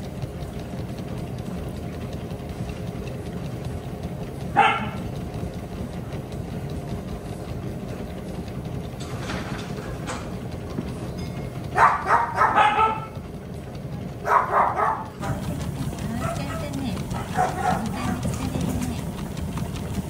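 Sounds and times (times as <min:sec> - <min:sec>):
treadmill motor hum: 0:00.0 - 0:20.0
dog barking: 0:04.5 - 0:05.1, 0:11.8 - 0:13.2, 0:14.2 - 0:15.5, 0:16.2 - 0:18.3.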